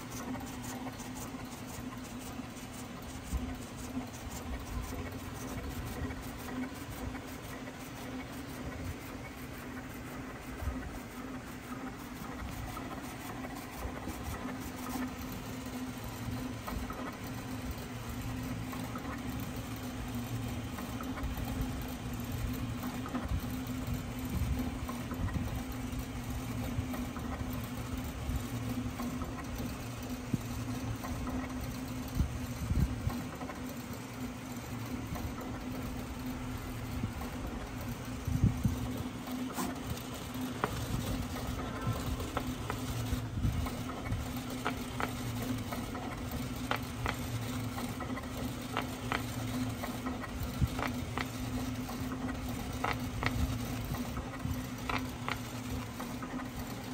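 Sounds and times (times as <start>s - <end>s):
plotter motor hum: 0.0s - 56.9s
blade carriage whirring and clicking: 35.1s - 56.9s.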